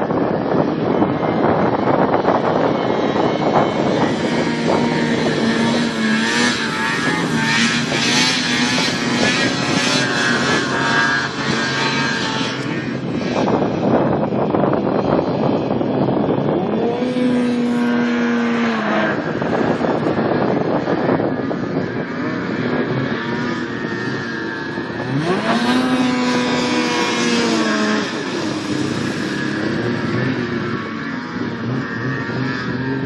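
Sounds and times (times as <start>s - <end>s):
snowmobile engines running hard: 0.0s - 33.0s.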